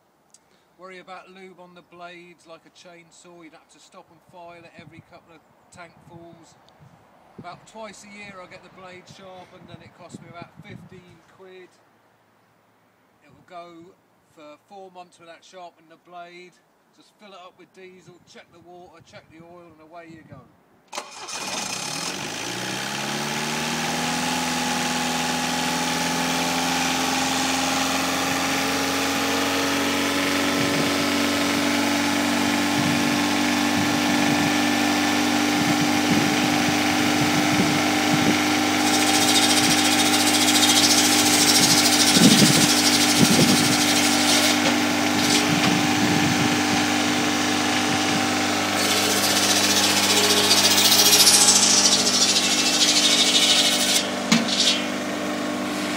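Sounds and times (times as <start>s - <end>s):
circular saw cutting logs: 20.9s - 55.9s
diesel engine running: 21.0s - 55.9s.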